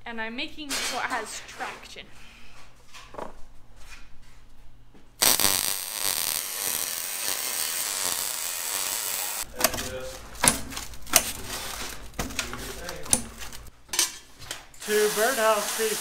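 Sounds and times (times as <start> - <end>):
welder arc burning: 5.2 - 11.8, 14.8 - 16.0.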